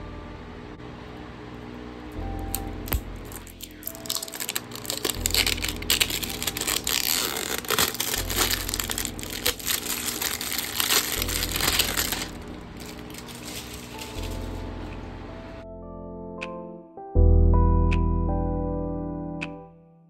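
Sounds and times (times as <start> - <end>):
soft background music: 0.0 - 19.9
plastic wrapping crinkling: 2.4 - 14.8.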